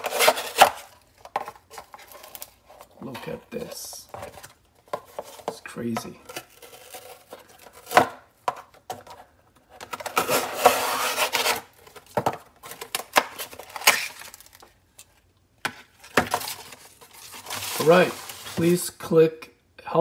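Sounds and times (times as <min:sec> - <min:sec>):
knife cutting cardboard: 0:00.0 - 0:00.9, 0:10.1 - 0:11.7
cardboard knocking and crackling: 0:11.9 - 0:14.1, 0:15.6 - 0:18.8.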